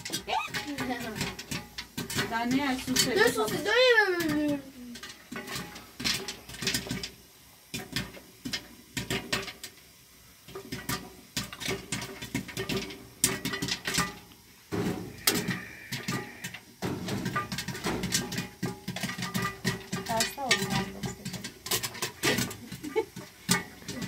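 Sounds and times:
metal teapot clinking: 0.0 - 7.0, 17.2 - 24.0.

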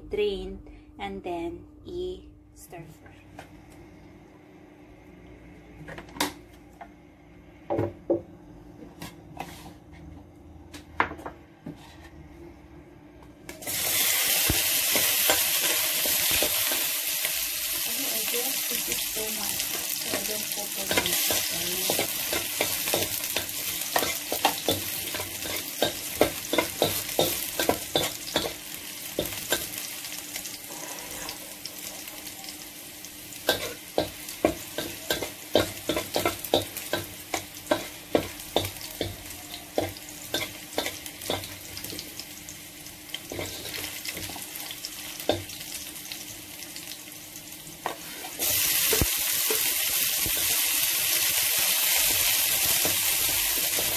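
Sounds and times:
garlic sizzling in a wok: 13.5 - 53.9.

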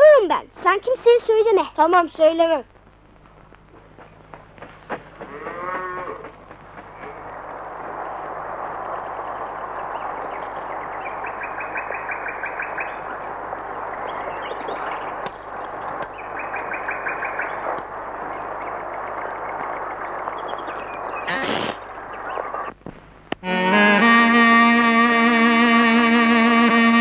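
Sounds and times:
bird singing repeated notes: 8.1 - 22.7.

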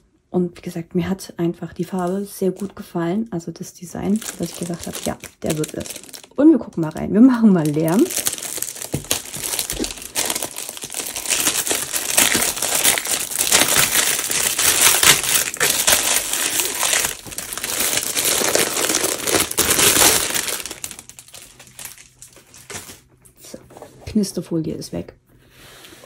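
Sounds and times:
plastic film crinkling: 4.0 - 23.1.

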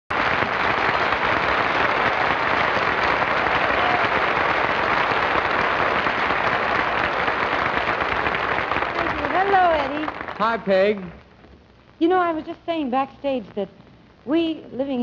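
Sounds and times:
audience applauding: 0.1 - 11.2.

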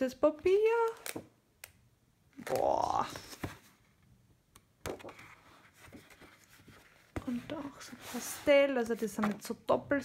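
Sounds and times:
paper rustling: 4.8 - 9.6.

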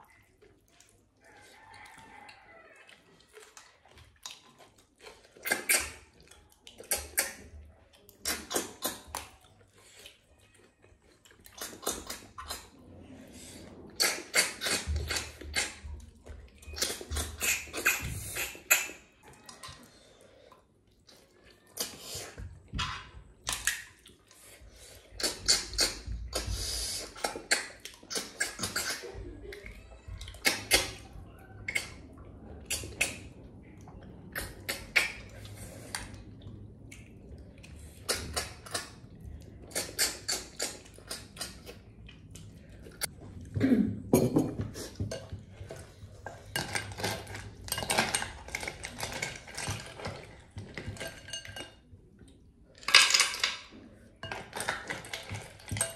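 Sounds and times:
slurping snails from shells: 0.3 - 29.2, 30.4 - 43.2.

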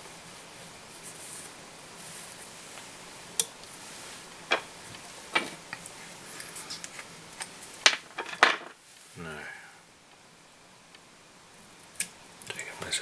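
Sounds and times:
faint room hiss: 0.0 - 13.0.

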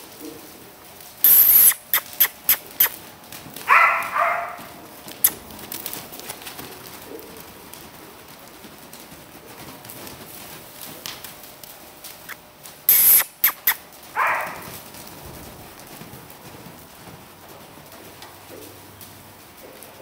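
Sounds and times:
hooves on soft ground: 0.0 - 20.0
loud sharp hiss: 1.2 - 2.6, 12.9 - 13.8
quick clicks: 1.2 - 3.0, 5.1 - 6.4, 12.2 - 13.9.

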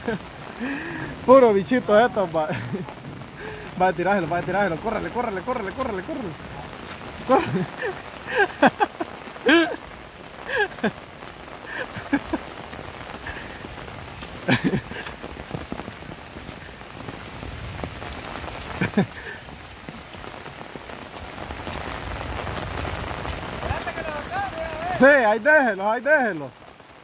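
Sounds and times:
heavy rain falling: 0.0 - 27.0
person shouting: 23.8 - 25.0.

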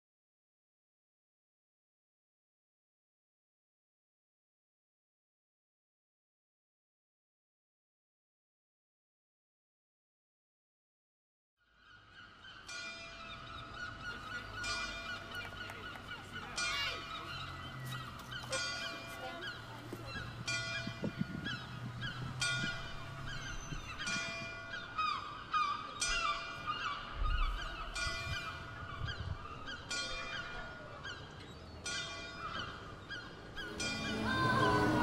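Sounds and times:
geese honking: 33.6 - 35.0.

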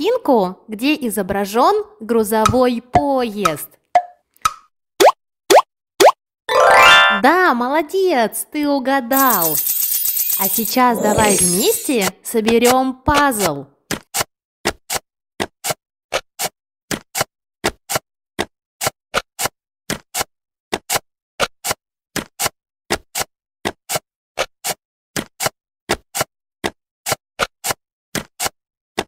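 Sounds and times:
puzzle pieces clicking: 9.1 - 11.9.

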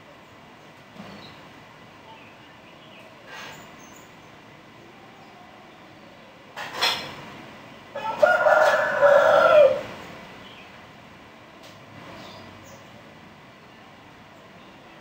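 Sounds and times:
rooster crowing: 7.9 - 9.9.

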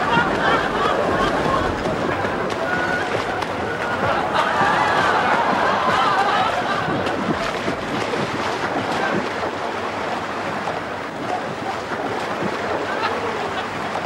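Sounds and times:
pool water splashing and sloshing: 0.0 - 14.0.

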